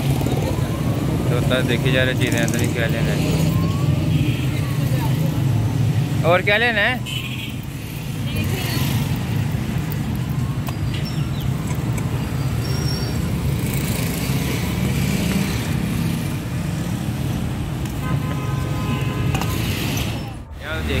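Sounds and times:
road traffic rumble: 0.0 - 21.0.

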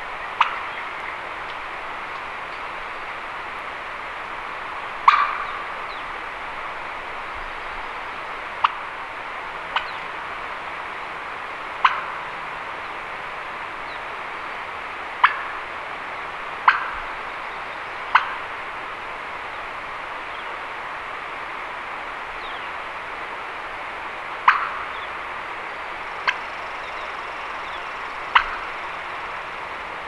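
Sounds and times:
rushing background noise: 0.0 - 30.0
turkey clucks: 0.3 - 1.6, 5.0 - 5.7, 8.6 - 8.8, 9.7 - 10.0, 11.8 - 12.2, 15.2 - 15.6, 16.6 - 17.0, 18.1 - 18.5, 24.4 - 25.2, 26.2 - 29.0.

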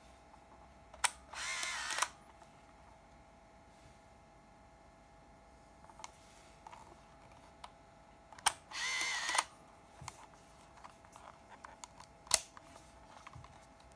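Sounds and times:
camera shutter click: 1.0 - 2.2, 8.4 - 9.5
film-advance motor whirring: 1.3 - 2.2, 8.4 - 9.5.

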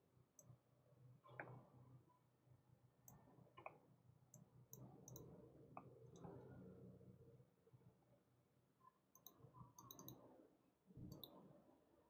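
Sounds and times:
computer mouse clicks: 3.1 - 6.3, 9.1 - 10.2, 11.1 - 11.4.

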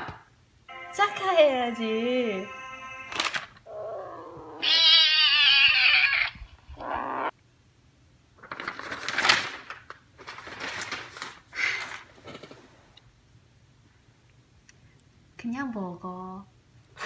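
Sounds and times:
high-pitched wavering yowl: 3.7 - 7.3.

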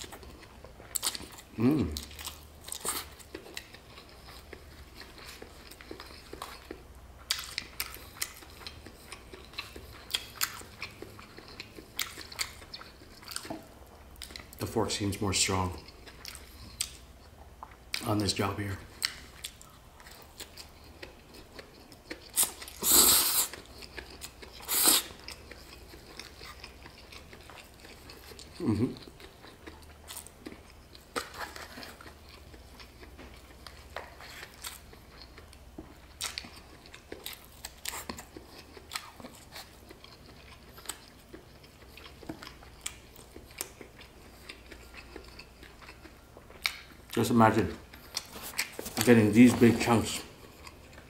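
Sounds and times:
wet chewing with clicks: 0.0 - 14.7, 15.6 - 18.3, 18.9 - 51.0
loud noodle slurps: 22.8 - 23.6, 24.6 - 25.1.

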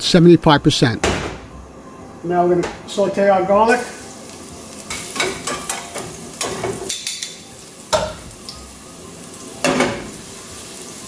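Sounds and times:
garlic sizzling in oil: 3.6 - 11.0
pan knocking on burner grate: 4.9 - 8.3.

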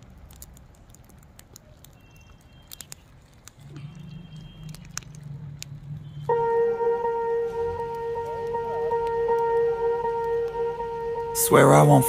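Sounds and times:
wood fire crackling and popping: 0.0 - 10.6
low steady hum: 2.7 - 12.0.

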